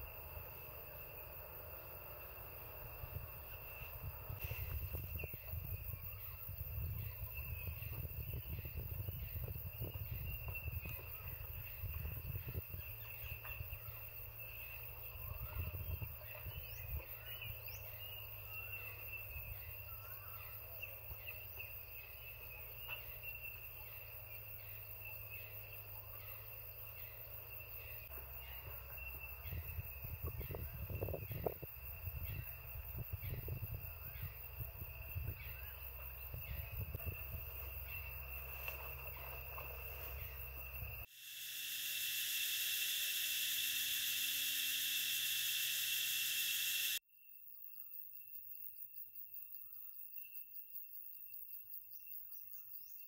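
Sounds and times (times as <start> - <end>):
insects trilling: 0.0 - 53.0.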